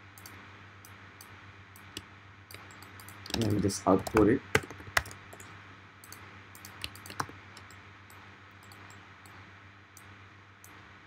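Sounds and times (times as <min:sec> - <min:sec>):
steady low hum: 0:00.0 - 0:11.0
keyboard and mouse clicks: 0:01.8 - 0:09.4.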